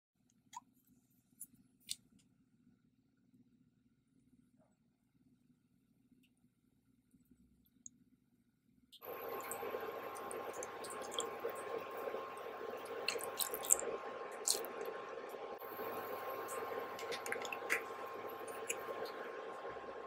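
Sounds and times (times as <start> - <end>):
sharp crackles and pops: 9.0 - 20.0.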